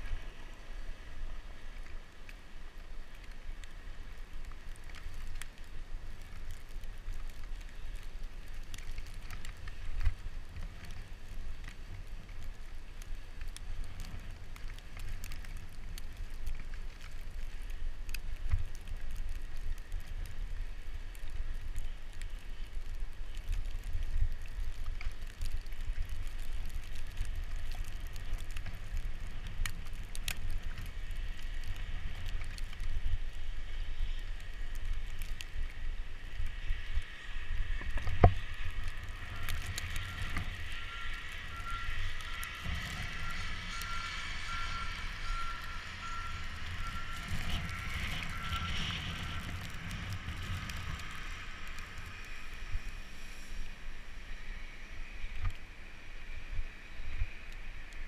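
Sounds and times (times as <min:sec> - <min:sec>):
bicycle tyre noise: 0:00.0 - 0:58.0
reversing alarm beeping: 0:39.4 - 0:49.6.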